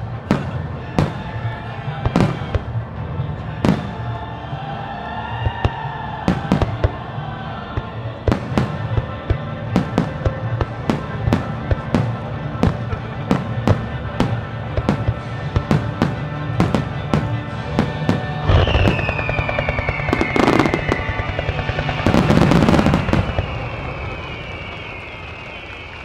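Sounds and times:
firework crackling: 5.3 - 26.0
firework shell bursts: 17.5 - 25.8
falling firework whistle: 17.8 - 26.0.

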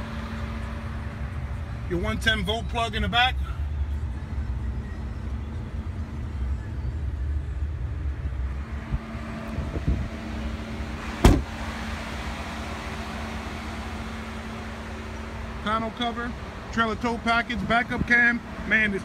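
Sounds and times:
car door thump: 11.2 - 11.6.

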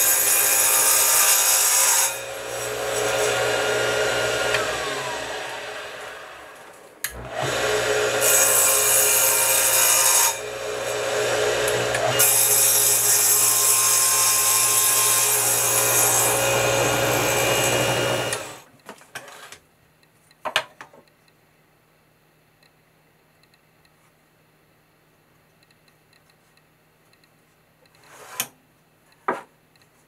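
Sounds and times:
table saw running: 0.0 - 18.6
saw cutting wood: 0.0 - 18.7.

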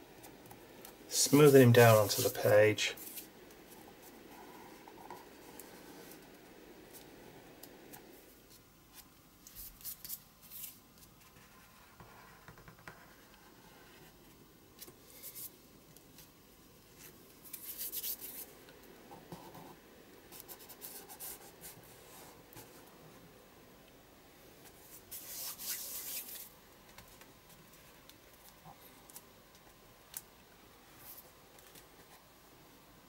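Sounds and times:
scratchy paper bursts: 1.1 - 3.3, 24.9 - 26.5.

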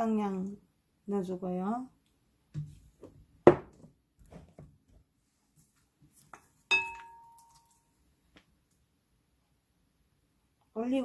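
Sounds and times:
utensils knocking on glass bowl: 6.7 - 7.6
glassy clink ringing: 6.7 - 7.8.

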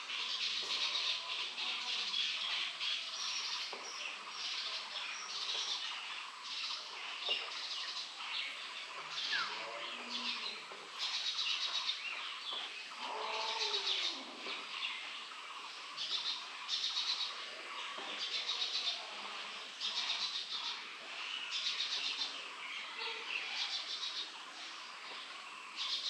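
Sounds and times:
small birds chirping: 0.0 - 26.0.

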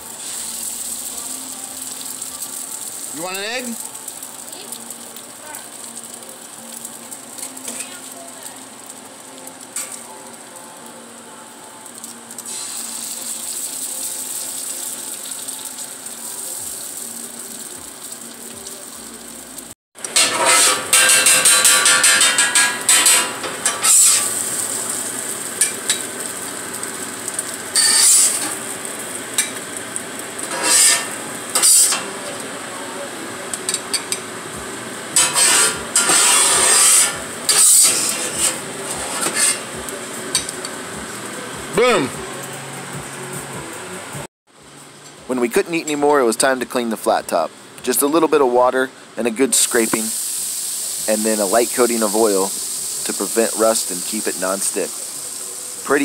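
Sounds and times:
eggs sizzling on griddle: 0.0 - 43.2, 49.5 - 56.0
metal spatulas scraping steel plate: 20.1 - 24.2, 30.5 - 32.0, 35.2 - 39.7.

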